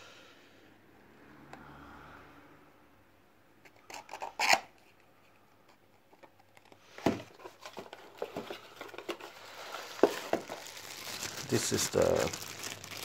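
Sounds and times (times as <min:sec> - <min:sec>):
paper rustling: 0:07.3 - 0:13.0.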